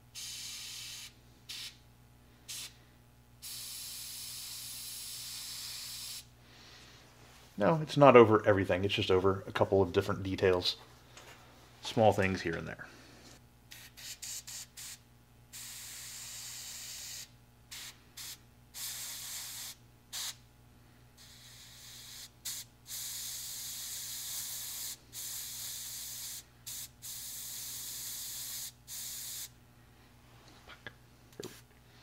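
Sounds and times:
airbrush spraying hiss: 0.2 - 1.8, 2.5 - 2.8, 3.4 - 6.3, 13.7 - 20.4, 21.2 - 29.6.

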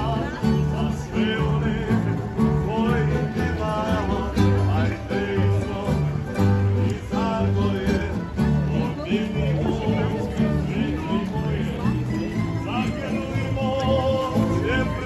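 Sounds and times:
acoustic string band playing: 0.0 - 15.0.

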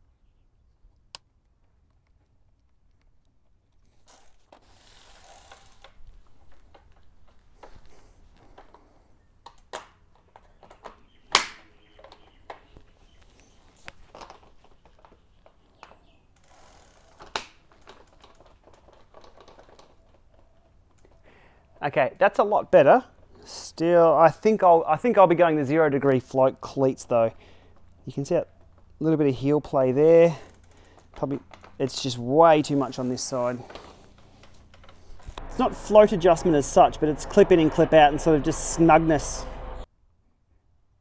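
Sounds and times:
shoe cleats clicking into pedals: 27.0 - 37.4.

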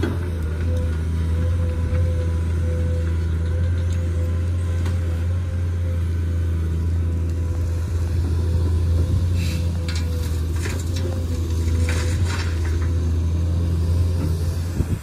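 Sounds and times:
excavator diesel engine drone: 0.0 - 15.0
high hydraulic whine: 7.3 - 12.9.

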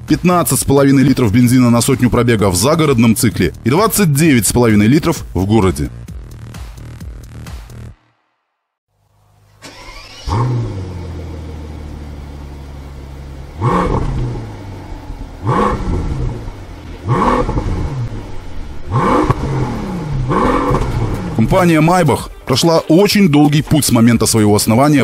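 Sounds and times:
car engine starting and revving: 9.0 - 22.3.

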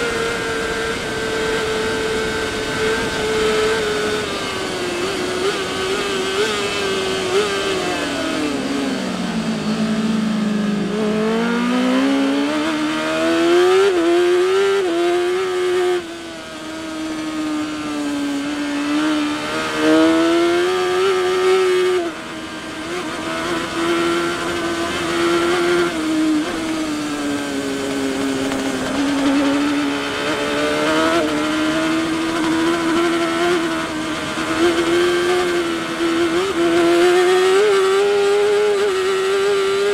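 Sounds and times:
motorcycle engine racing: 0.0 - 39.9.

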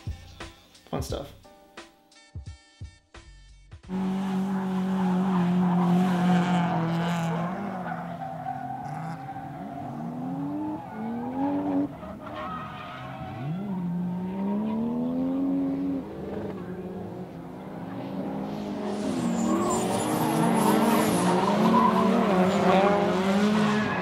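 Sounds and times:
car engines revving hard: 3.9 - 24.0
tyre squeal: 4.5 - 15.0, 18.4 - 24.0.

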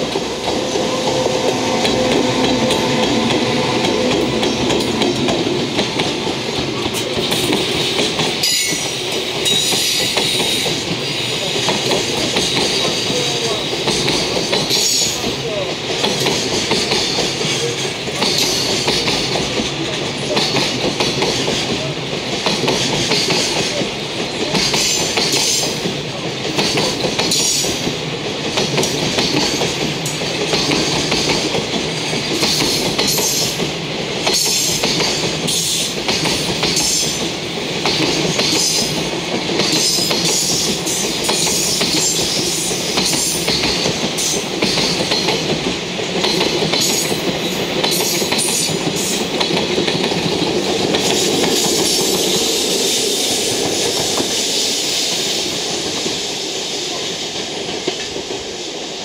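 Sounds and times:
train wagons clacking over rails: 0.0 - 56.3, 56.9 - 59.0.

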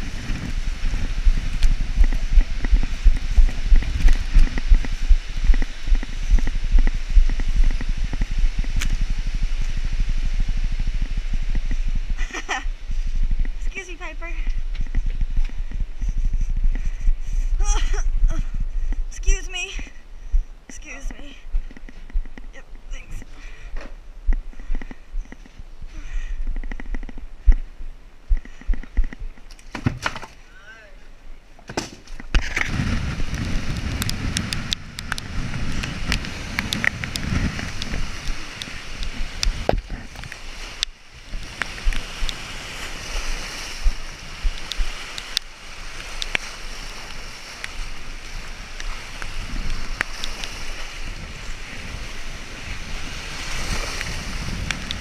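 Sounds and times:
waves splashing over rocks: 0.0 - 10.0, 32.4 - 55.0
wind rumbling on microphone: 0.0 - 55.0.

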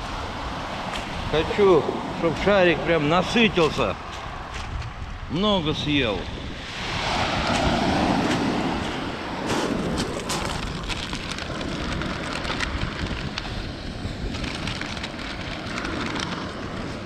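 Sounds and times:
surf washing over pebbles: 0.0 - 17.0
stones clicking and rattling: 9.9 - 13.6, 14.3 - 16.7.

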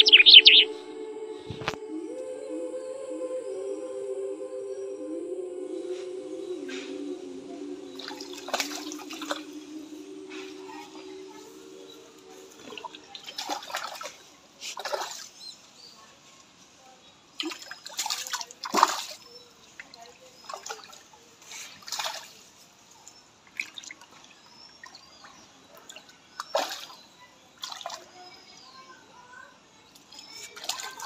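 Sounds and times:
fish splashing in water: 8.0 - 9.4, 12.6 - 15.4, 17.4 - 21.0, 21.6 - 22.4, 25.9 - 28.3.

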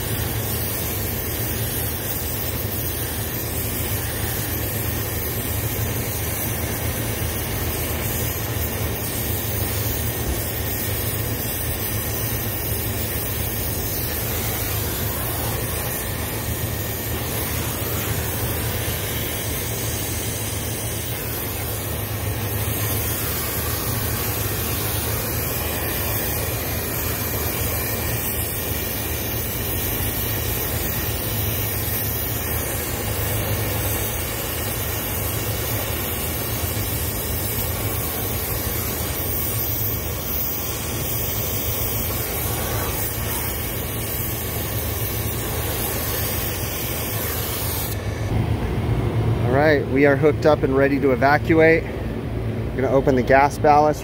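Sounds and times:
torch flame hissing: 0.0 - 48.4.

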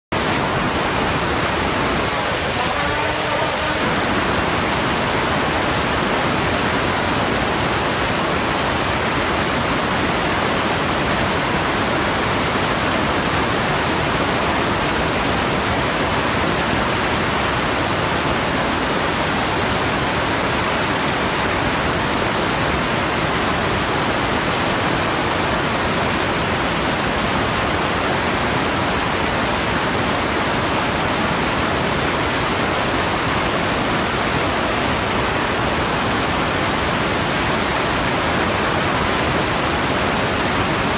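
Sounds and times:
crowd applauding: 2.0 - 4.6.

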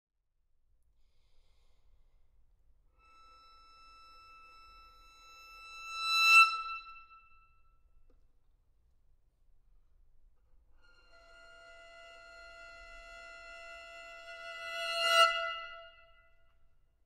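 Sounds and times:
violin sustained high note: 3.0 - 7.6, 10.8 - 16.3.

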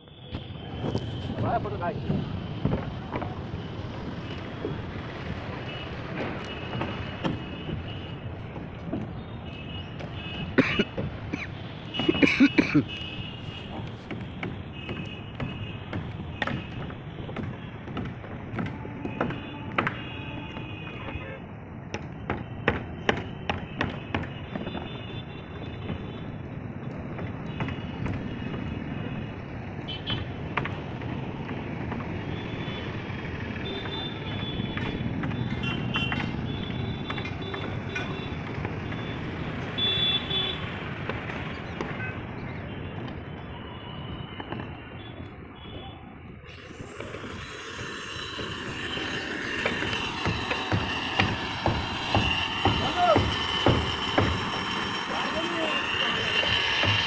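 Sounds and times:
vehicle horn: 0.0 - 1.5, 11.7 - 13.9, 18.6 - 21.4, 23.2 - 26.2, 29.8 - 30.3, 35.4 - 38.3, 39.8 - 40.7, 45.0 - 54.5, 55.2 - 57.0
road traffic noise: 0.0 - 57.0.

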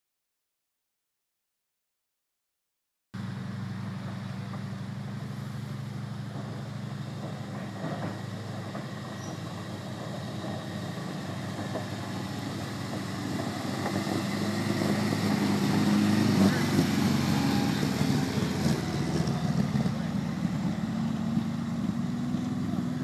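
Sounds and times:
truck engine running: 3.2 - 23.0.

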